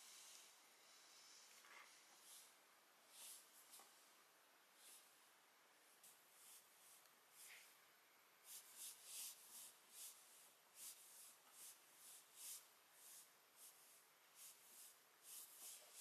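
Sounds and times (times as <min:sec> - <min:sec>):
cat fur being rubbed: 0:08.4 - 0:16.0.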